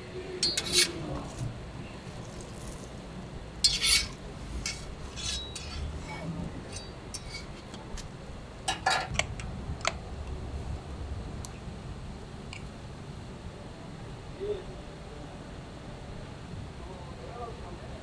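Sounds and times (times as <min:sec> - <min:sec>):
metal spatula scraping griddle: 0:00.4 - 0:03.0, 0:03.6 - 0:07.8.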